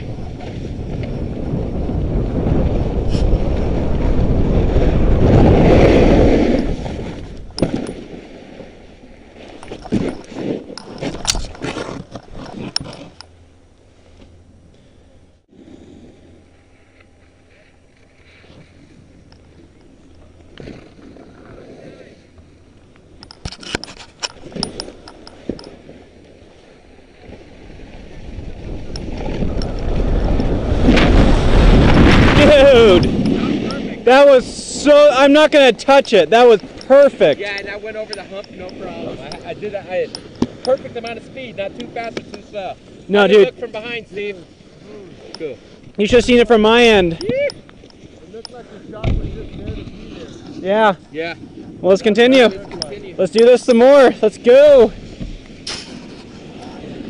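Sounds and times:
skis clicking and knocking on snow: 0:00.0 - 0:08.6, 0:09.4 - 0:13.2, 0:27.1 - 0:44.3, 0:45.4 - 0:57.0
wind rushing over microphone: 0:00.0 - 0:13.3, 0:27.1 - 0:57.0
wind on microphone: 0:00.0 - 0:13.4, 0:18.4 - 0:35.4
short ski scrapes: 0:04.8 - 0:07.4, 0:09.4 - 0:13.2, 0:55.0 - 0:57.0.

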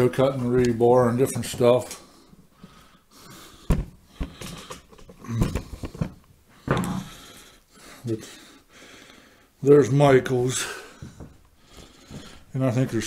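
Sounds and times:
soft knocks and thumps: 0:03.6 - 0:07.1, 0:11.0 - 0:11.4.

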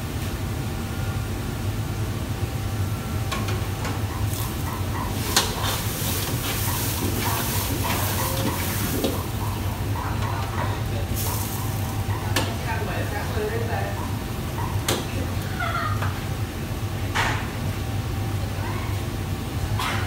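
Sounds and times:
steady low hum: 0:00.0 - 0:20.0
food sizzling in a wok: 0:04.3 - 0:09.8, 0:11.0 - 0:12.0.

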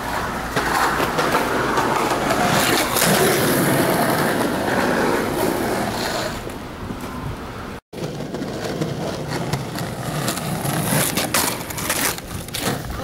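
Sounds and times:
skateboard wheels rolling on concrete: 0:00.0 - 0:13.0.

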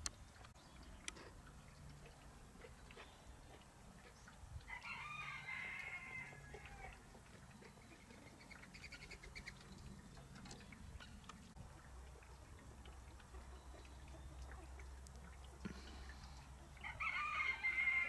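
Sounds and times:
chickens clicking and chirping: 0:00.0 - 0:18.0
rooster crowing: 0:04.7 - 0:06.9, 0:16.8 - 0:18.0.

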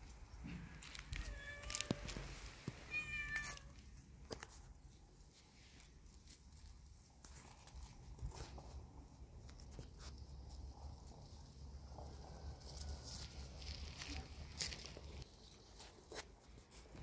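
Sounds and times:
paws rustling in leaves: 0:00.8 - 0:17.0
kitten meowing: 0:02.9 - 0:03.7.

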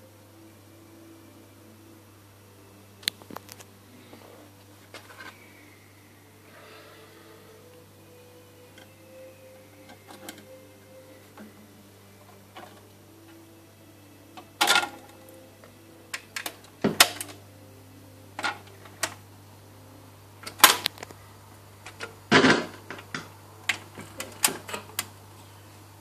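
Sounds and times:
steady low hum: 0:00.0 - 0:26.0
record changer clicks and clunks: 0:20.4 - 0:21.1.

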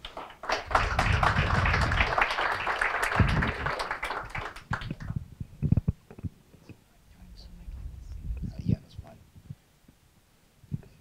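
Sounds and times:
audience applause: 0:00.0 - 0:05.2.

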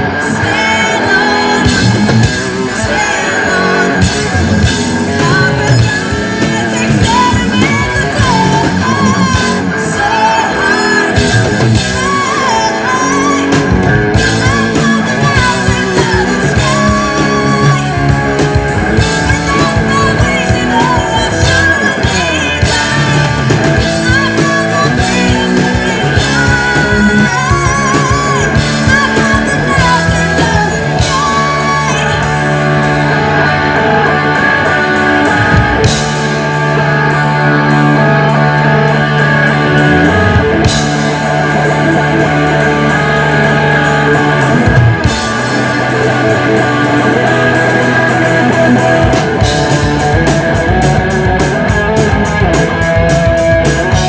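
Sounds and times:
bass guitar: 0:00.0 - 0:54.0
electric guitars: 0:00.0 - 0:54.0
fast drum kit: 0:00.0 - 0:54.0
held low guitar chords: 0:00.0 - 0:54.0
woman singing: 0:00.1 - 0:36.0.

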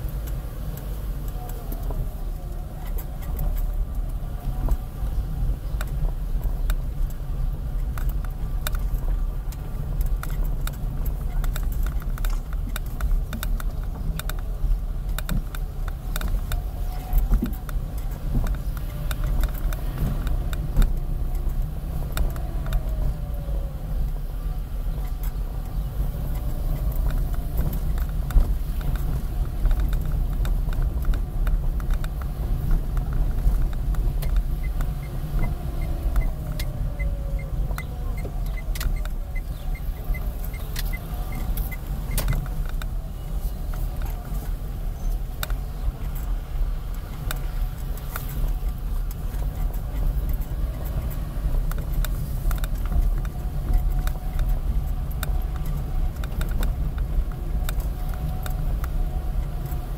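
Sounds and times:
car engine and road rumble: 0:00.0 - 0:59.9
rattles in car cabin: 0:00.0 - 0:59.9.

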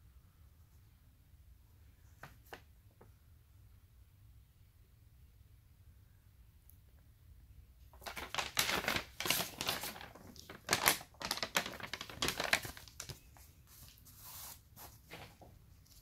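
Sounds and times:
paper crinkling while folded: 0:07.9 - 0:16.0.

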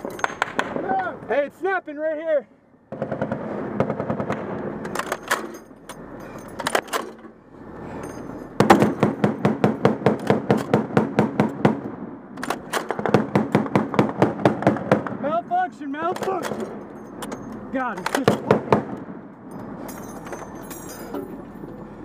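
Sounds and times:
heavy machine gun firing: 0:02.9 - 0:05.5, 0:08.6 - 0:15.3, 0:18.1 - 0:19.2.

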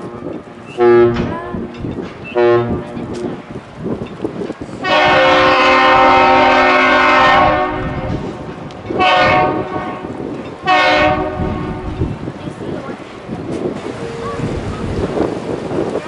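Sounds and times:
ship horn blasts: 0:00.0 - 0:03.3, 0:04.8 - 0:12.2.

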